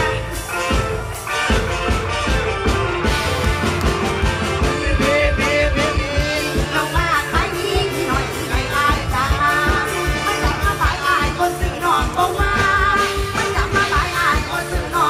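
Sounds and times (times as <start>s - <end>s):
steady drum beat: 0.0s - 15.0s
woman singing into microphone: 4.7s - 15.0s.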